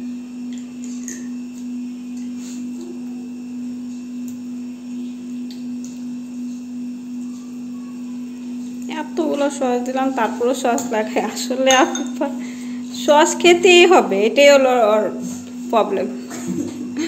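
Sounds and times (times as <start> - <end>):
steady low hum: 0.0 - 17.0
fork clinking ceramic bowl: 11.7 - 12.2.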